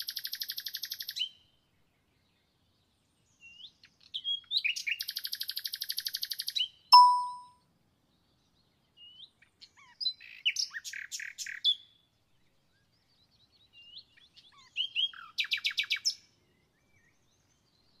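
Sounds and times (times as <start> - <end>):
songbird chirping and trilling: 0.0 - 7.5, 8.2 - 18.0
bright ringing ding: 7.0 - 7.5.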